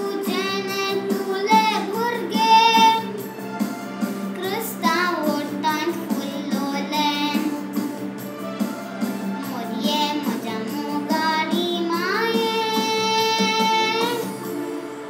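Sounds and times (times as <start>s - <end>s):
girl singing a hymn: 0.0s - 3.1s, 4.4s - 7.6s, 9.5s - 14.4s.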